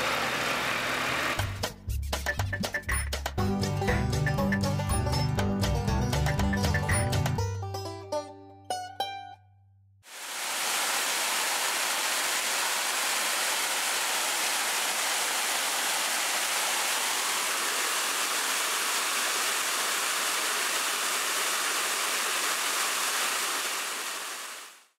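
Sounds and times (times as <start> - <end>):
waterfall splashing into pool: 10.1 - 24.9.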